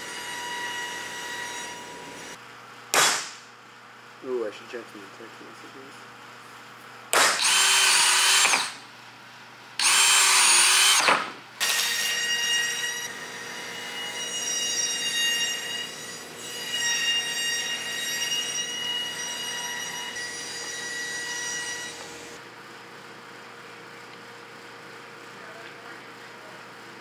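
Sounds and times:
cordless drill boring: 7.4 - 8.8, 9.8 - 12.0.

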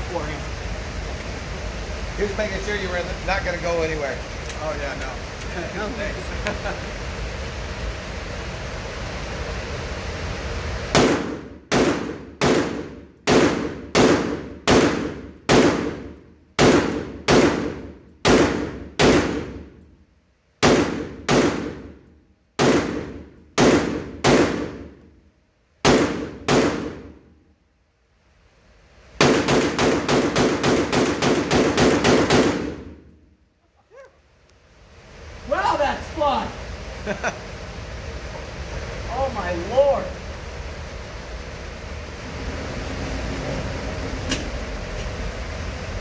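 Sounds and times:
rifle shots echoing indoors: 10.9 - 19.7, 20.6 - 22.0, 22.6 - 25.1, 25.8 - 27.2, 29.2 - 33.1.

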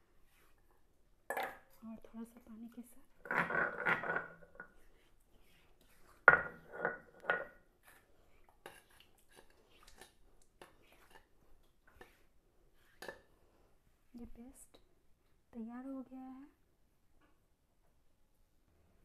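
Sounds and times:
steel bowl clattering on stone: 3.2 - 4.8, 6.3 - 7.6.

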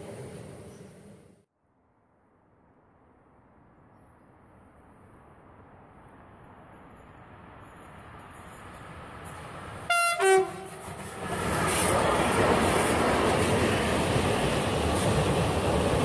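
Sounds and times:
train wheels rumbling on rails: 6.3 - 16.0
two-tone train horn: 9.9 - 10.8.

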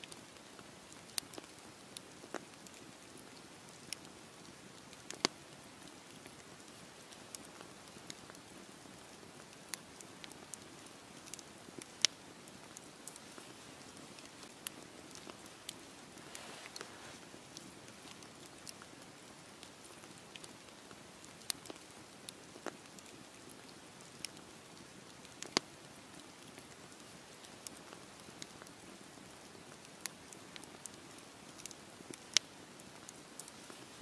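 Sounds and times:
campfire flames hissing: 0.0 - 34.0
logs crackling and popping: 0.0 - 34.0.

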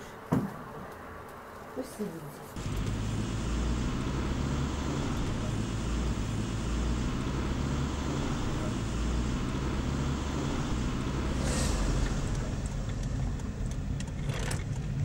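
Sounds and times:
car road and engine noise: 2.5 - 15.0
brief hiss: 11.3 - 13.3.

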